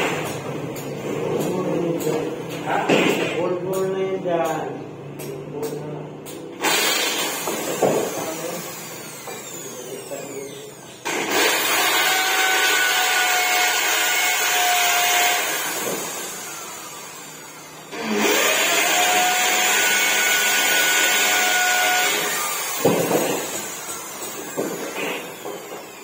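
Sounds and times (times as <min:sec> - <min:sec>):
electric drill whining: 0:06.6 - 0:26.0.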